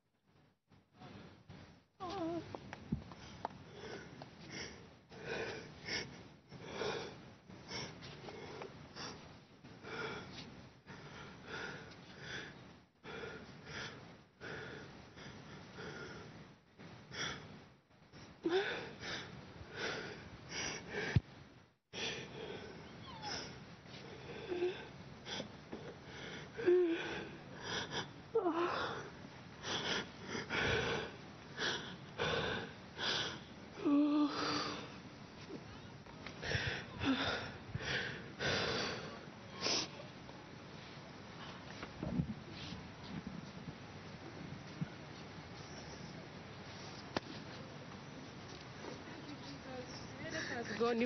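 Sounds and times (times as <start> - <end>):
woman whimpering: 2.0 - 2.5, 22.9 - 23.6.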